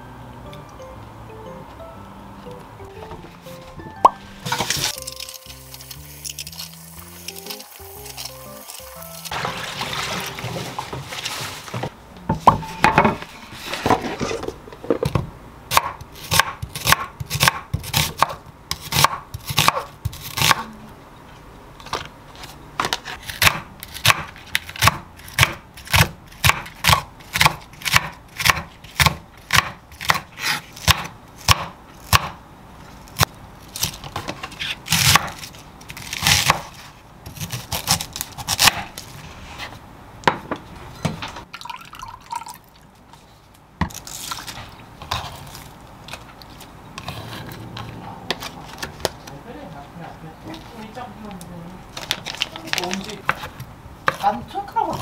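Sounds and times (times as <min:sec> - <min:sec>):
kitchen tap running water: 0:08.6 - 0:11.4
knife chopping on wooden board: 0:15.1 - 0:20.6, 0:22.8 - 0:32.4.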